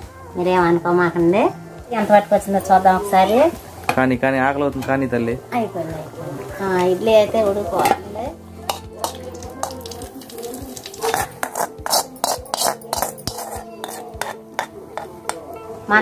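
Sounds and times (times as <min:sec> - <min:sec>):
metal cookware clattering: 0:07.7 - 0:15.1.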